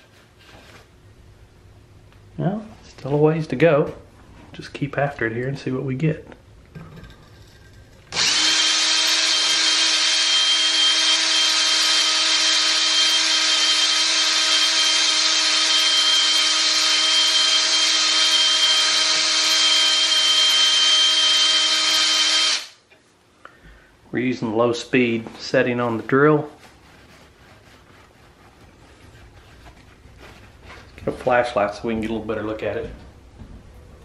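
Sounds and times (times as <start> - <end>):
electric drill whine: 8.1 - 22.8.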